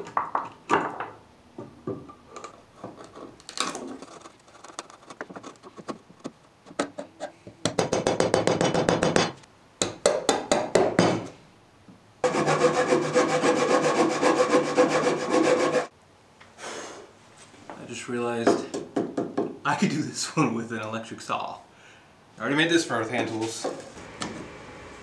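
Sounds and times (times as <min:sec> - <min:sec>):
hand saw cutting wood: 0:12.2 - 0:15.9.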